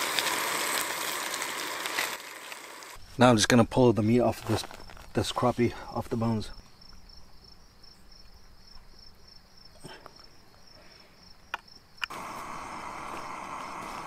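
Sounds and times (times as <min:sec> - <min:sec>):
rushing hiss: 0:00.0 - 0:03.0, 0:12.1 - 0:14.0.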